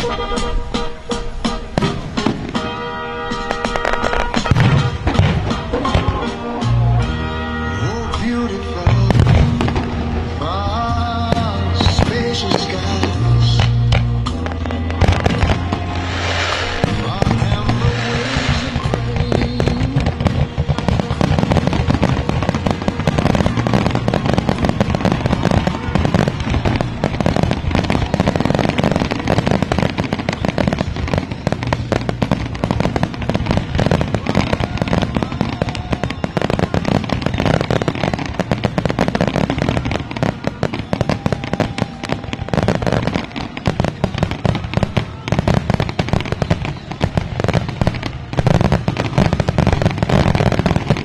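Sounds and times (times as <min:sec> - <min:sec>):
firework shells bursting: 0:01.2 - 0:06.7, 0:14.0 - 0:51.0.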